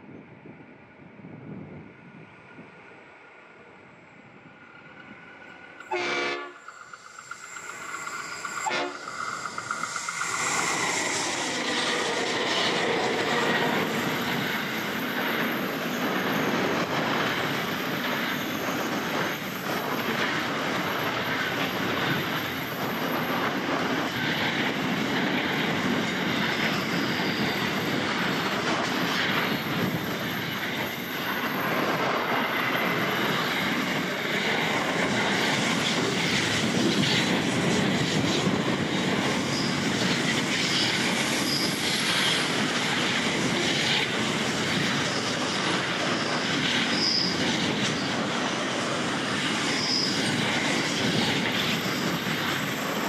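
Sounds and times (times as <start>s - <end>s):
locomotive horn blast: 5.9s - 6.6s, 8.6s - 9.0s.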